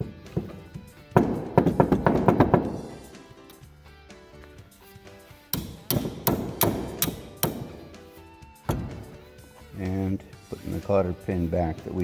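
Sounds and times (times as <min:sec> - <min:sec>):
hammer striking steel pin: 0:05.5 - 0:08.0.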